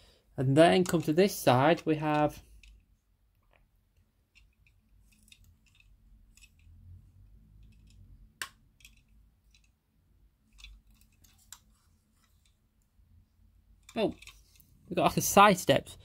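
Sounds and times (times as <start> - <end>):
faint small clicks and taps: 2.1 - 9.8.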